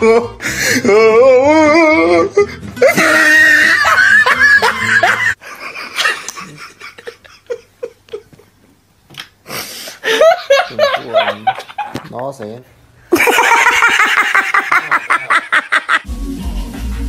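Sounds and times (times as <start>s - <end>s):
person laughing hard: 2.8s - 8.5s, 13.1s - 16.1s.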